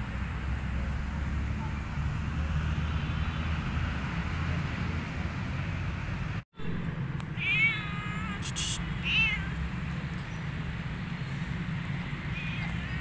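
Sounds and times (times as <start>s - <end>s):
cat meowing: 7.4s - 9.6s, 12.3s - 13.0s.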